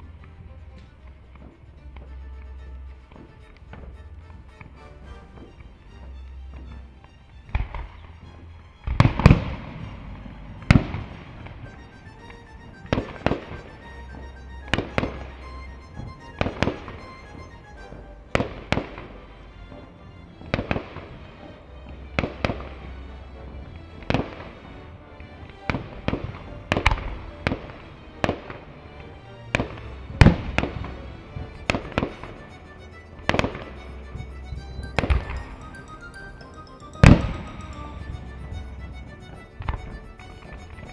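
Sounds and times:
fireworks bursting with echo: 0:07.5 - 0:24.7, 0:25.3 - 0:28.7, 0:29.5 - 0:40.9.

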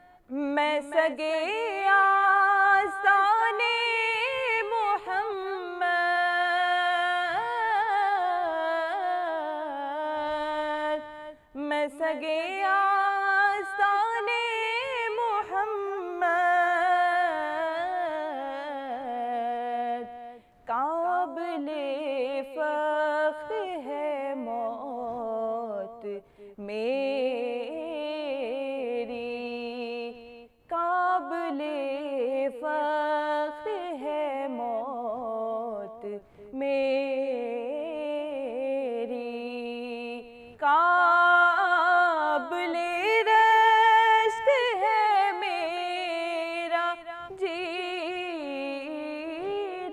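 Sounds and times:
woman singing: 0:00.0 - 0:49.9
singer breathing: 0:26.2 - 0:26.6.

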